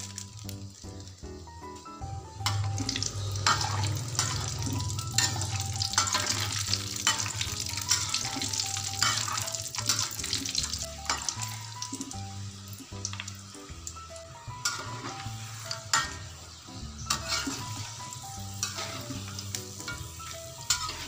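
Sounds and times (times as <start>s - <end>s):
food sizzling in hot oil: 0.0s - 21.0s
soft background music: 0.0s - 21.0s
metal spatula scraping wok: 2.3s - 11.7s, 14.6s - 21.0s.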